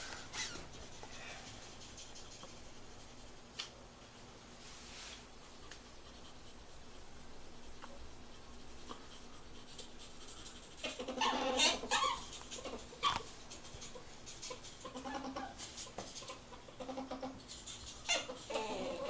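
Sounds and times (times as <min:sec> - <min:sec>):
ferret calling: 0:10.8 - 0:13.3.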